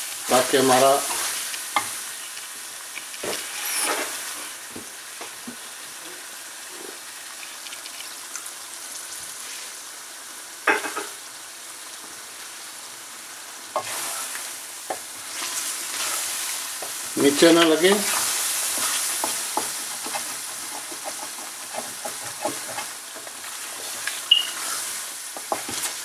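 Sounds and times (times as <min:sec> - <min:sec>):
meat sizzling in a metal pan: 0:00.0 - 0:26.0
metal spatula stirring and scraping: 0:15.3 - 0:26.0
spatula clacking against pan: 0:25.3 - 0:25.9.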